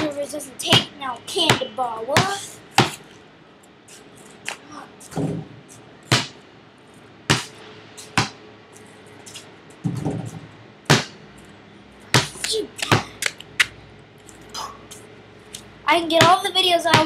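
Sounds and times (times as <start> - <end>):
basketball bouncing on pavement: 0.0 - 3.1, 4.4 - 6.4, 7.3 - 8.4, 9.8 - 11.2, 12.0 - 13.4, 16.0 - 17.0.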